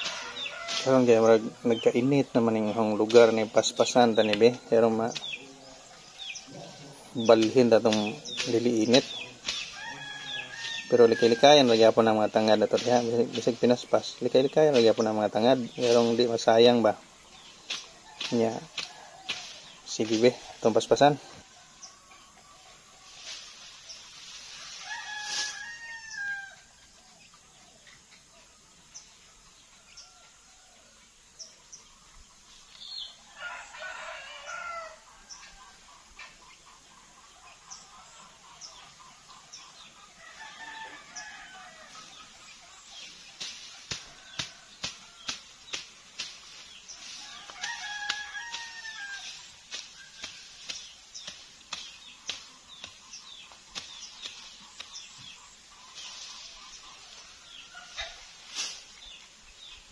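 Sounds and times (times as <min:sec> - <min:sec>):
rooster crowing: 0:00.0 - 0:01.0, 0:09.7 - 0:11.6, 0:24.7 - 0:26.7, 0:33.3 - 0:35.1, 0:40.2 - 0:42.0, 0:47.2 - 0:49.4.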